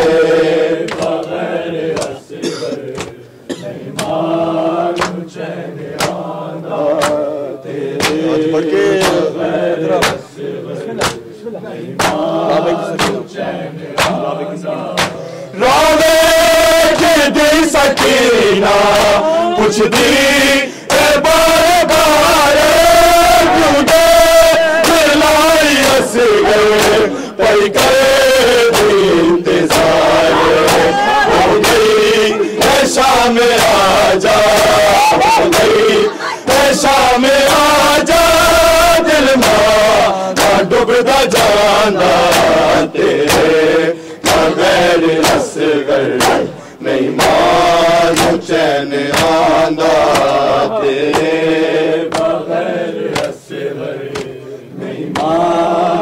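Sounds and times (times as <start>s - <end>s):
men chanting a lament: 0.0s - 56.0s
hands slapping chests: 0.9s - 2.2s, 2.9s - 3.2s, 4.0s - 4.2s, 4.9s - 5.2s, 5.9s - 6.2s, 6.9s - 7.2s, 8.0s - 8.3s, 9.0s - 9.3s, 9.9s - 10.2s, 11.0s - 11.2s, 12.0s - 12.3s, 13.0s - 13.2s, 14.0s - 14.3s, 15.0s - 15.2s, 17.9s - 18.2s, 27.8s - 29.0s, 29.7s - 33.8s, 34.4s - 35.8s, 39.4s - 39.7s, 40.4s - 40.6s, 42.3s - 42.6s, 43.2s - 43.6s, 44.2s - 44.6s, 45.2s - 45.5s, 46.2s - 46.6s, 48.1s - 51.4s, 52.1s - 52.4s, 53.1s - 53.4s, 54.1s - 54.4s, 55.1s - 55.4s.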